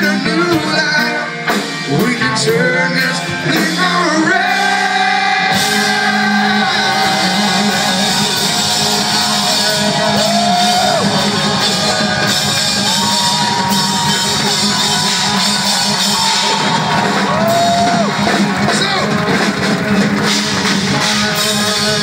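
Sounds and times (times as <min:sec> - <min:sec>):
live hard rock band: 0:00.0 - 0:22.0
electric guitar sliding notes: 0:04.2 - 0:22.0.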